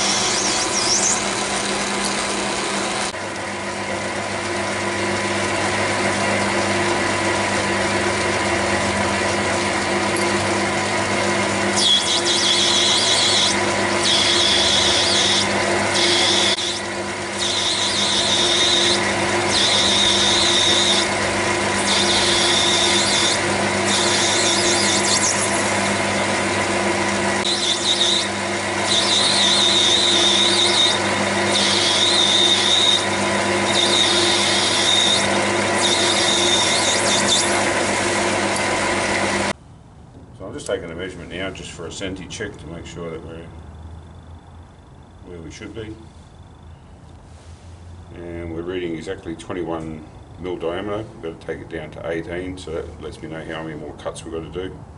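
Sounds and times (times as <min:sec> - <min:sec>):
high squeal of cutting tool: 0:00.0 - 0:01.4, 0:11.7 - 0:26.0, 0:27.4 - 0:38.0
lathe motor hum: 0:00.0 - 0:39.6.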